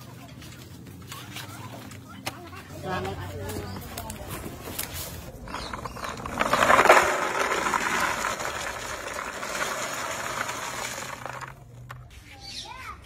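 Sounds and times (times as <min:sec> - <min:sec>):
cardboard tubes rattling into plastic tub: 0:05.3 - 0:12.1.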